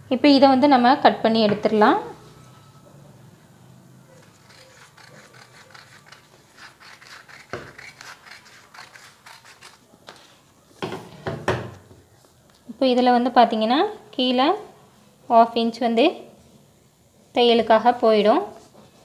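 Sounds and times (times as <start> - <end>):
paper rustling: 4.1 - 10.4
scissors snipping paper: 4.2 - 9.8.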